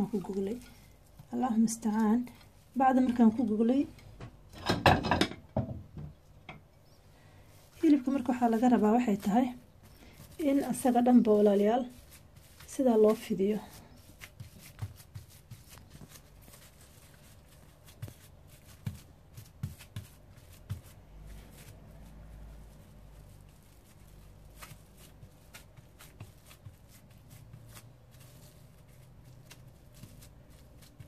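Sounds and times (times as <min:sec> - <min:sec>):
plastic film rustling: 0:07.5 - 0:31.0
hands patting minced meat: 0:07.9 - 0:31.0.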